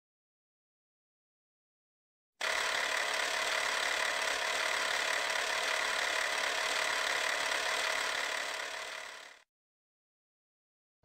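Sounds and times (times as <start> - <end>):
film projector whirring: 2.4 - 9.4.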